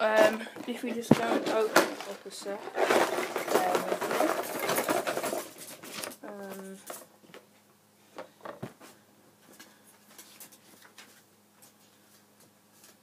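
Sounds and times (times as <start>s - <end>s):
faint steady hum: 0.0s - 13.0s
plastic parts clicking and rustling: 0.1s - 7.4s.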